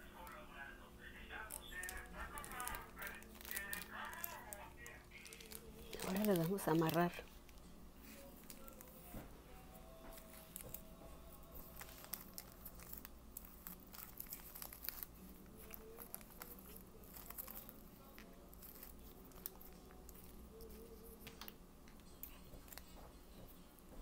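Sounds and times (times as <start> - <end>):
cellophane bag crinkling: 1.4 - 9.1, 10.1 - 21.5.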